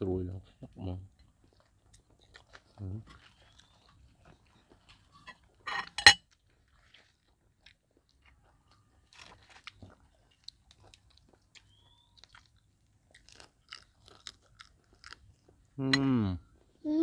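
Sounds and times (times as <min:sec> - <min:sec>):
wet chewing: 0:00.4 - 0:16.8
loud crunch of crispy food: 0:01.6 - 0:05.6, 0:06.3 - 0:15.5.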